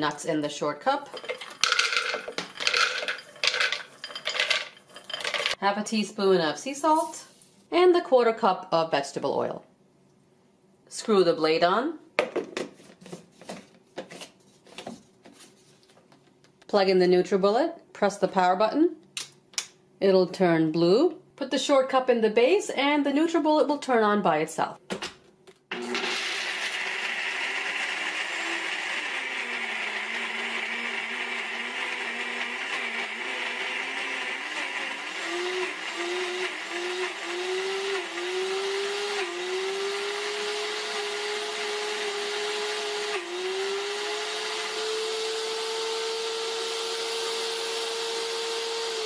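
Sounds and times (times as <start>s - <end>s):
blender motor grinding nuts: 1.1s - 5.6s, 25.7s - 49.0s.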